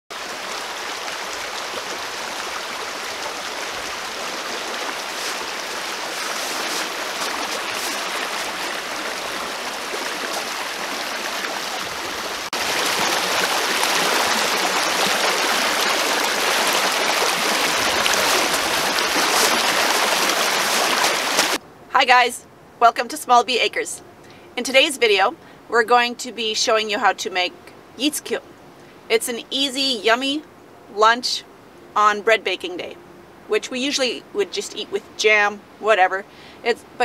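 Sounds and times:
creek rushing over logs: 0.1 - 21.6.

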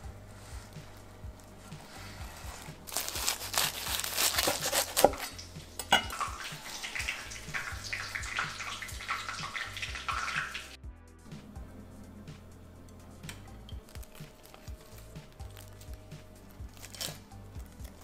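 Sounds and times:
knife crunching crisp shell: 2.9 - 6.2, 13.3 - 18.0.

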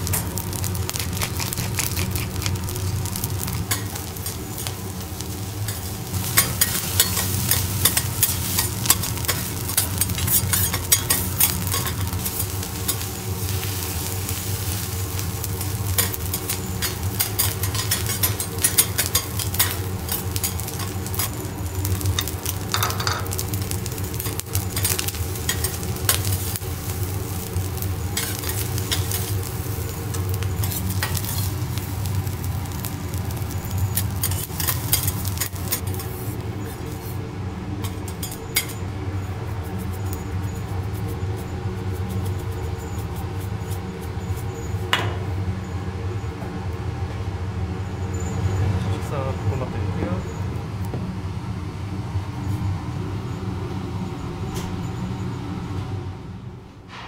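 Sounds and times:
rice sizzling on griddle: 0.0 - 46.8
steady low hum: 0.0 - 57.0
metal spatulas scraping and tapping: 5.7 - 12.1, 16.0 - 21.3.

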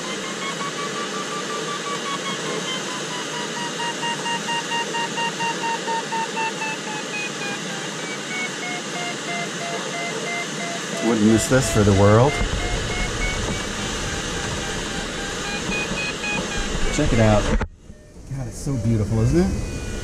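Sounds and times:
variometer beeping rapidly: 0.0 - 20.0
air hissing past canopy: 9.1 - 20.0.

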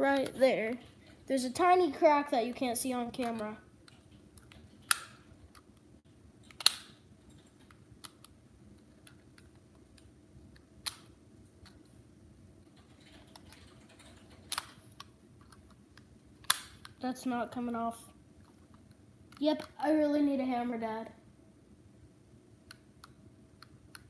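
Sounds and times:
sharp plastic clicks: 2.6 - 5.8, 6.4 - 8.4, 9.0 - 11.8, 12.8 - 17.0.

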